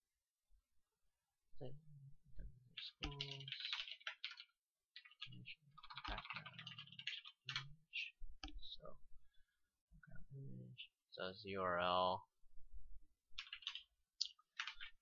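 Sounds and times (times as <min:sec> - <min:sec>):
typing on keyboard: 0:02.8 - 0:07.7, 0:13.4 - 0:15.0.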